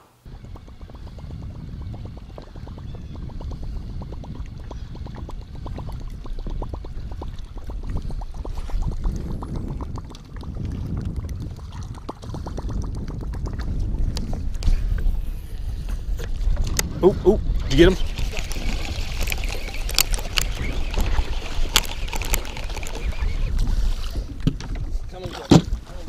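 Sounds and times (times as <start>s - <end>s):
steady low rumble: 0.2s - 25.1s
water lapping against boat hull: 0.3s - 26.0s
small clicks: 18.2s - 23.3s.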